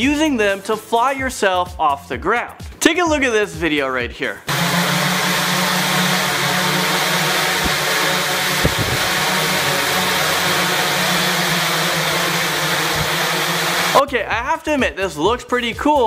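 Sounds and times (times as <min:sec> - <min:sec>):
multicopter propellers whirring: 0:04.5 - 0:14.0.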